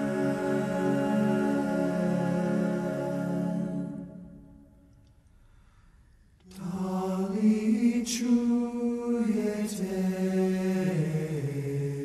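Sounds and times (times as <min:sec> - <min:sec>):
music with long sung notes: 0:00.0 - 0:04.8.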